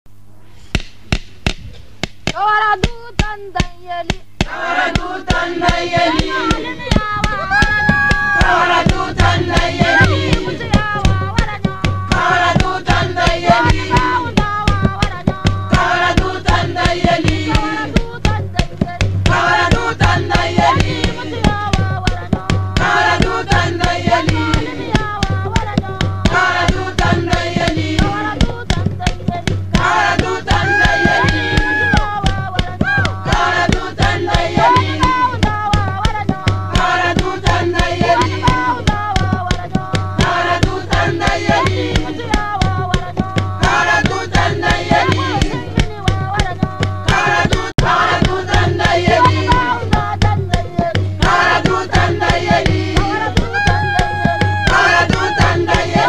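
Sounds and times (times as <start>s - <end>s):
several voices singing: 4.4s - 56.0s
pulsing bass: 5.6s - 20.4s.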